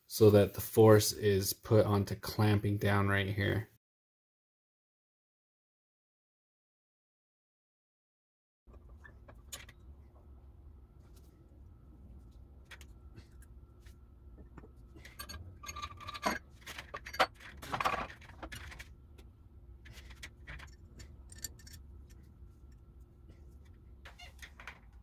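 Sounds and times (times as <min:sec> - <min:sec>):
metal parts clinking and scraping: 0:14.6 - 0:18.9, 0:19.8 - 0:22.3.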